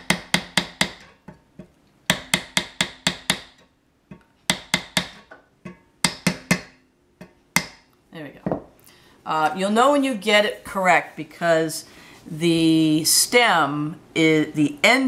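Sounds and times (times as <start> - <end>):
mallet tapping wooden dowel: 0.0 - 7.8.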